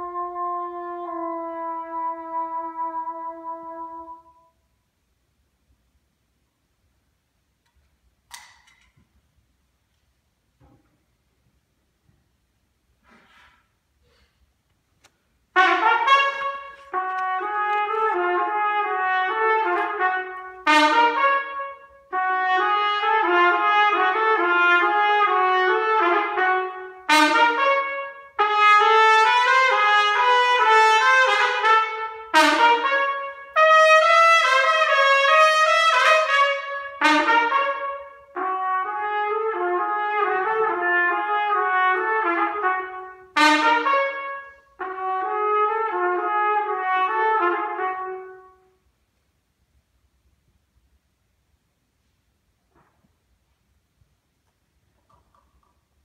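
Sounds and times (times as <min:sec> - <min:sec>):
trumpet playing: 0:00.0 - 0:04.7, 0:15.5 - 0:48.9.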